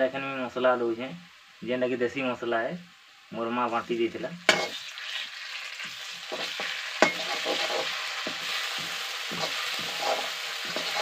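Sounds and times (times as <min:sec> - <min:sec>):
food sizzling in hot oil: 0:00.0 - 0:11.0
metal ladle scraping a pan: 0:04.5 - 0:05.2, 0:06.3 - 0:11.0.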